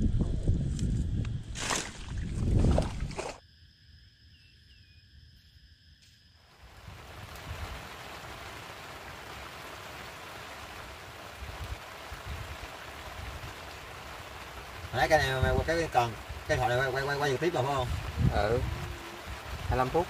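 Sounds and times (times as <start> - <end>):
wind rumbling on microphone: 0.0 - 3.4, 6.7 - 8.6, 10.9 - 20.0
rain hissing: 6.5 - 20.0.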